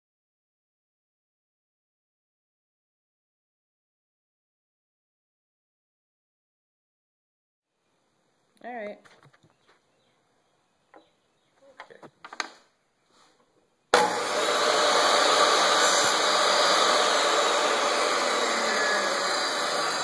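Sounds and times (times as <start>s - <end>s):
table saw cutting wood: 13.9s - 20.0s.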